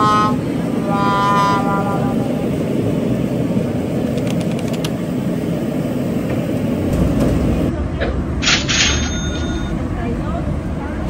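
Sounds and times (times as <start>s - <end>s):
person raising voice: 0.0s - 2.6s
busy street traffic and people: 0.0s - 11.0s.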